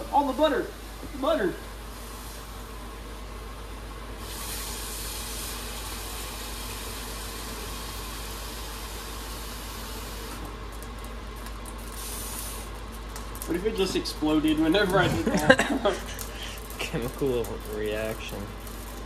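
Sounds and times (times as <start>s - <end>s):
water hissing in hot pan: 4.2s - 10.4s, 11.8s - 19.0s.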